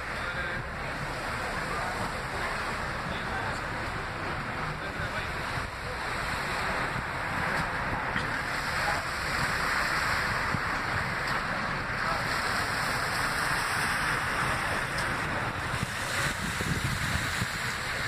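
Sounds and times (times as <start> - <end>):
faint traffic: 0.0 - 18.0
street ambience hiss: 0.0 - 18.0
wind buffeting microphone: 0.0 - 18.0.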